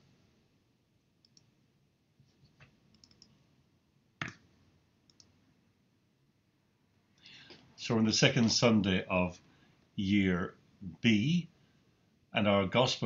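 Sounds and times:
computer clicks: 0:01.2 - 0:01.5, 0:02.9 - 0:03.4, 0:04.2 - 0:04.5, 0:05.1 - 0:05.4.

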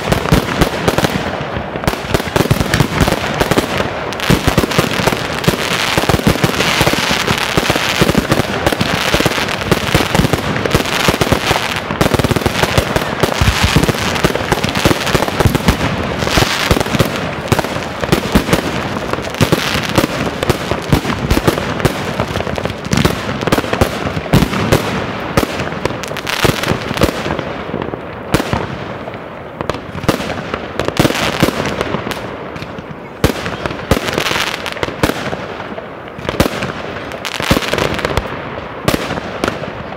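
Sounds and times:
fireworks sizzling crackle: 0:00.0 - 0:26.9
fireworks bangs: 0:00.0 - 0:39.9.

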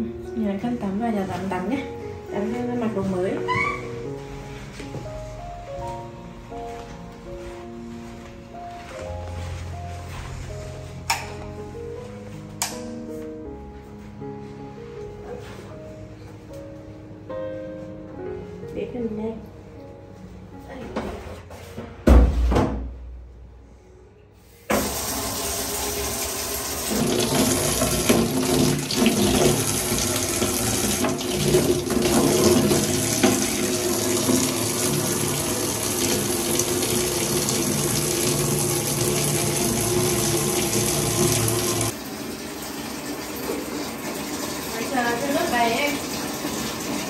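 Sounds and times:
thump: 0:22.1 - 0:23.0
shower water pouring into basin: 0:24.8 - 0:47.0.

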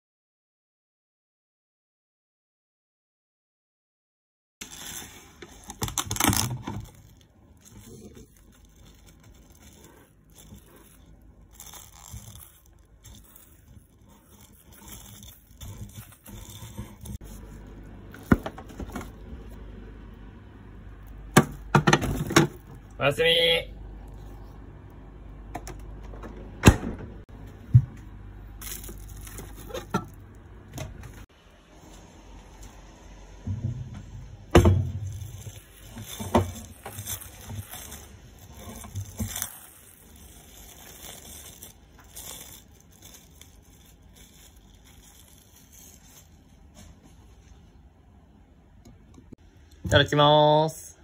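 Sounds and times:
cling wrap crinkling: 0:04.6 - 0:19.6, 0:28.5 - 0:31.3, 0:34.9 - 0:47.6.

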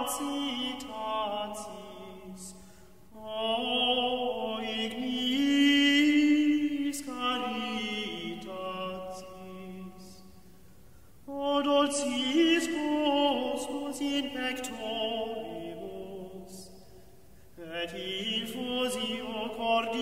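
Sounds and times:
slow meditative vocal chant: 0:00.0 - 0:10.4, 0:11.2 - 0:16.9, 0:17.5 - 0:20.0.

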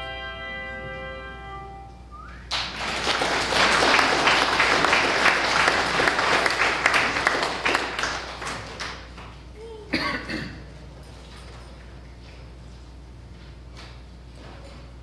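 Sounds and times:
congregation applauding: 0:02.5 - 0:09.3.

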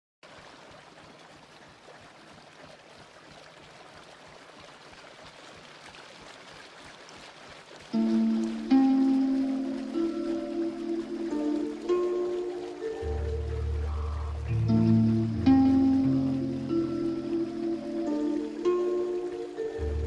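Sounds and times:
faint steady hiss: 0:06.3 - 0:20.0
held electronic chord: 0:08.0 - 0:20.0.

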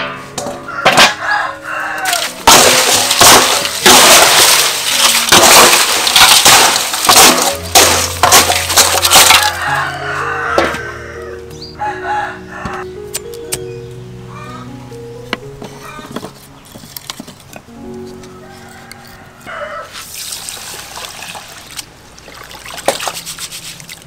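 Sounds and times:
background music: 0:00.0 - 0:19.9
crushed ice pouring into metal bowl: 0:02.2 - 0:09.7.

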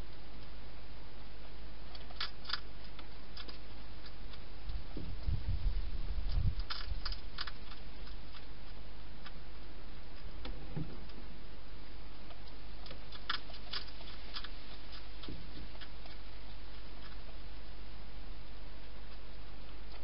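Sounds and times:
steady low hum: 0:00.0 - 0:20.0
hedgehog chewing clicks: 0:01.9 - 0:04.8, 0:06.3 - 0:09.4, 0:12.2 - 0:17.4.

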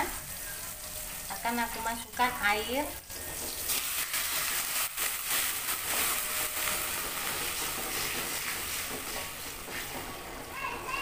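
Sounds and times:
oil hissing and sizzling in wok: 0:00.0 - 0:11.0
metal spatula stirring in wok: 0:03.1 - 0:10.2.

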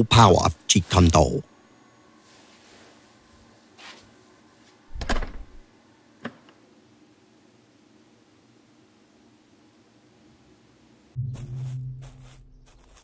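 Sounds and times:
faint brushing: 0:11.3 - 0:13.0.

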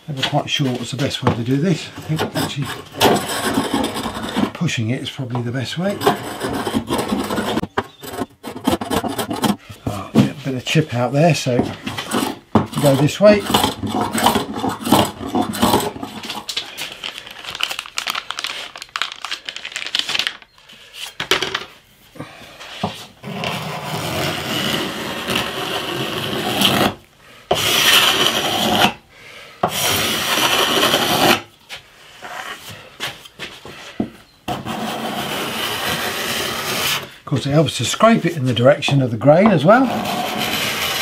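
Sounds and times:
steel scraper scraping wood: 0:01.7 - 0:04.7, 0:05.8 - 0:09.7, 0:11.6 - 0:16.6, 0:23.2 - 0:29.0, 0:29.6 - 0:31.5, 0:34.5 - 0:37.2, 0:38.9 - 0:41.0.

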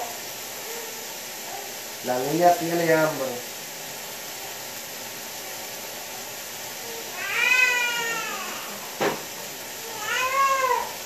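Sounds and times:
young animal hunger cries: 0:06.8 - 0:09.0, 0:09.8 - 0:11.0.

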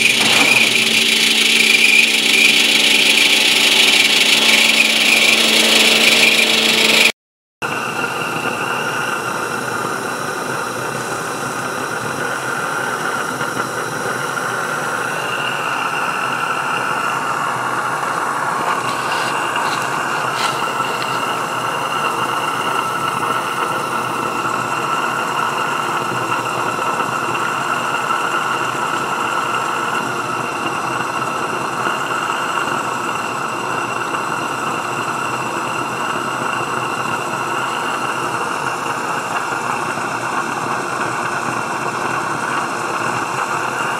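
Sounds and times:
steam engine chuffing: 0:00.0 - 0:07.1, 0:07.7 - 0:43.9
steam hiss: 0:14.6 - 0:25.6.

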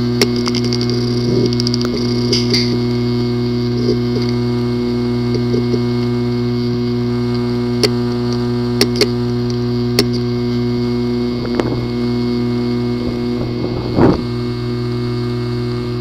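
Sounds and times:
hard disk buzzing hum: 0:00.0 - 0:16.0
hard disk clicking: 0:00.2 - 0:03.0, 0:05.1 - 0:10.7.

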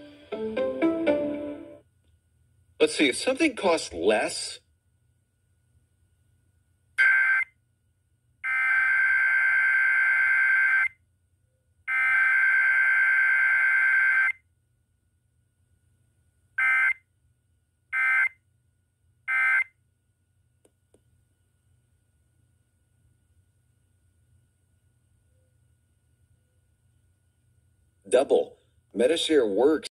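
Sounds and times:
digital data bursts on radio: 0:07.0 - 0:07.4.

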